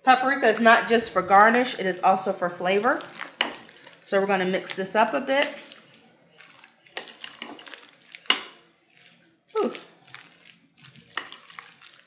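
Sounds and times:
spoon scraping glass bowl: 0:02.6 - 0:12.0.

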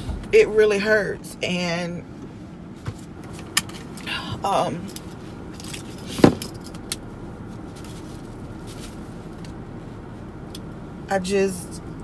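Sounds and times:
low hum in car cabin: 0:00.0 - 0:12.0
tissue rustling against face: 0:07.4 - 0:10.2.

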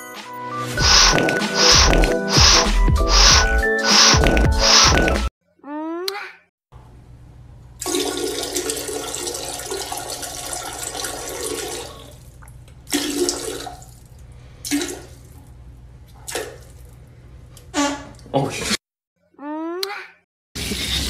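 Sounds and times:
rushing water-like noise: 0:00.8 - 0:04.9.

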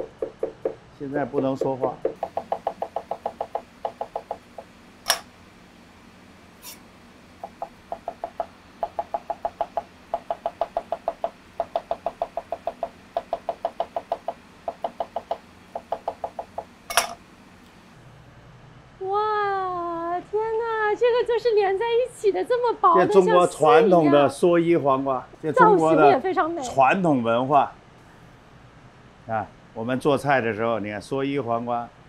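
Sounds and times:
cleaver tapping on cutting board: 0:01.4 - 0:05.2, 0:07.4 - 0:17.1.

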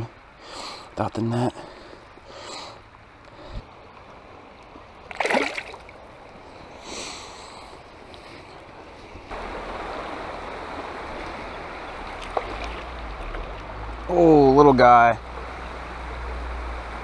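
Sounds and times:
creek water flowing: 0:00.0 - 0:17.0
soft splash or rustle: 0:03.7 - 0:06.7, 0:07.6 - 0:09.4, 0:10.2 - 0:14.0
water splash: 0:05.1 - 0:06.0, 0:09.4 - 0:13.8.

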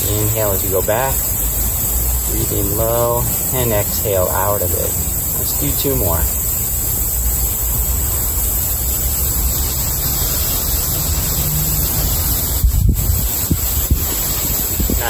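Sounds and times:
wind buffeting a microphone: 0:12.4 - 0:15.0.

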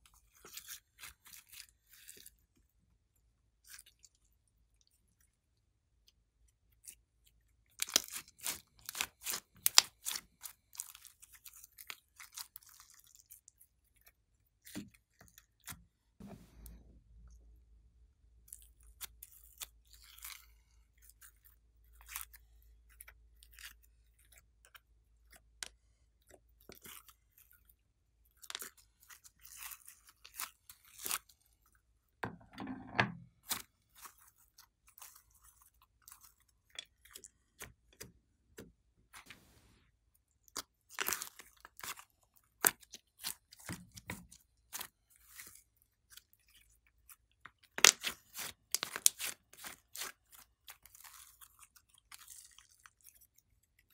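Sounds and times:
wet slime squelch: 0:00.0 - 0:32.2, 0:33.3 - 0:53.9
sticky slime clicks and crackles: 0:47.4 - 0:50.8.

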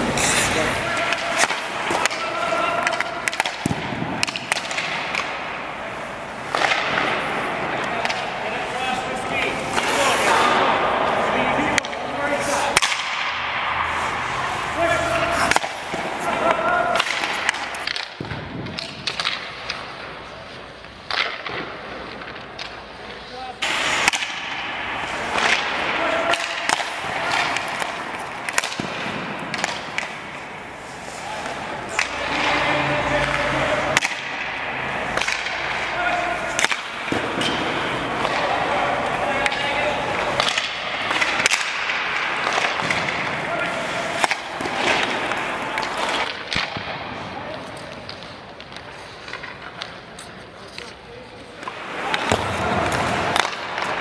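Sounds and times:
hockey sticks striking pucks: 0:00.0 - 0:54.0
pucks hitting goalie pads: 0:00.0 - 0:54.0
skates scraping on ice: 0:00.0 - 0:54.0.

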